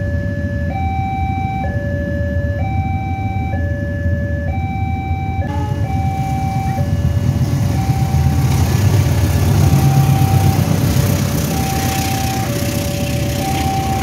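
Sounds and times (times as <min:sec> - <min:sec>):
two-tone crossing alarm: 0:00.0 - 0:14.0
locomotive engine passing: 0:03.3 - 0:14.0
train wheel noise: 0:05.5 - 0:14.0.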